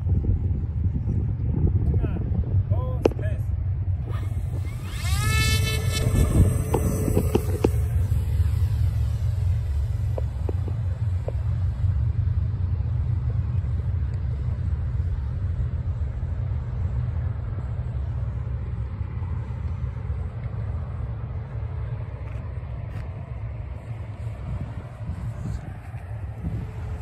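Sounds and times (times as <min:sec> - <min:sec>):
propeller plane droning: 0:00.0 - 0:27.0
wind buffeting microphone: 0:00.0 - 0:27.0.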